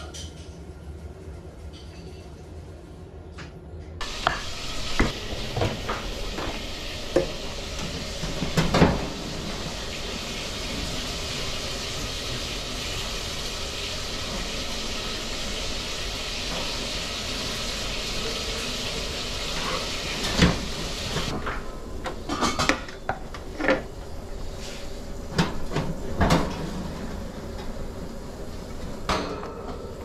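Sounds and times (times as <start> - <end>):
fish sizzling on a grill: 4.0 - 21.3.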